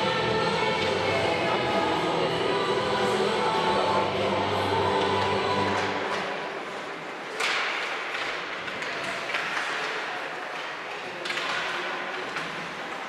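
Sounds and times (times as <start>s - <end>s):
hockey sticks clacking: 3.9s - 13.0s
sharp crack of stick on puck: 7.2s - 12.7s.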